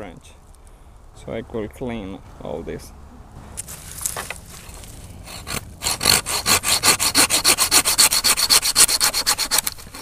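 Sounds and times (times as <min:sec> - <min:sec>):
hand saw cutting wood: 0:03.6 - 0:10.0.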